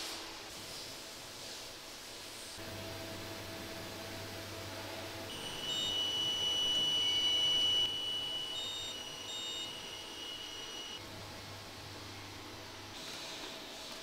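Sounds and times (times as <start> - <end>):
steady high electronic tone: 4.7 - 11.0.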